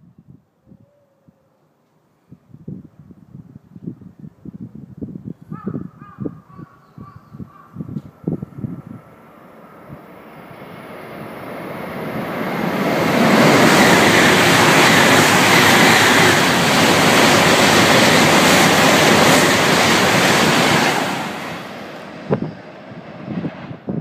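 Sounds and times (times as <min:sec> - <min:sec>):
high-speed train passing: 0:08.0 - 0:24.0.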